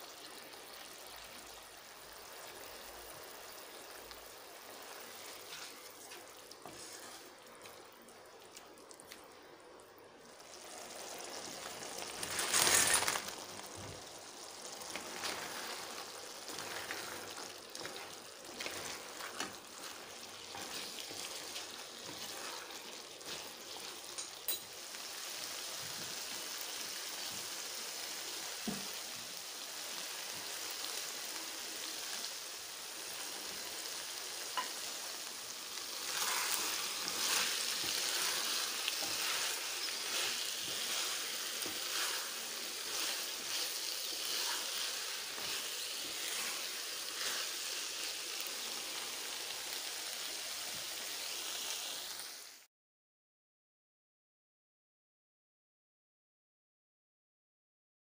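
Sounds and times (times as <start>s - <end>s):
sauce sizzling and bubbling: 0.0s - 52.7s
wooden spatula scraping pan: 4.8s - 7.4s, 14.8s - 24.3s, 35.9s - 47.7s.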